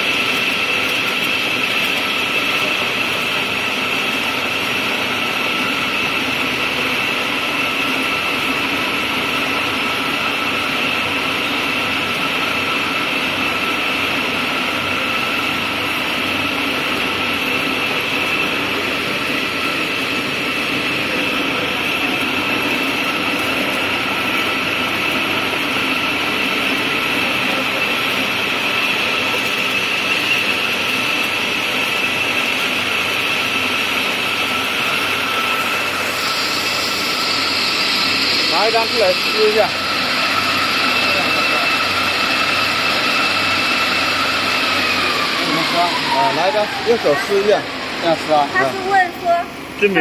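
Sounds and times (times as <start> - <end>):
die-cutting machine humming: 0.0 - 50.0
high machine whine: 0.0 - 50.0
high rushing hiss: 35.0 - 49.7.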